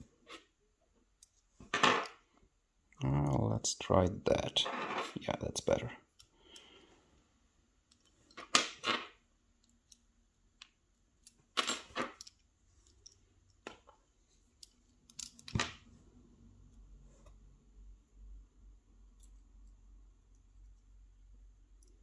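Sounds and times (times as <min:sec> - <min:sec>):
padlock and metal tools rattling: 0:11.2 - 0:13.6, 0:14.5 - 0:15.7.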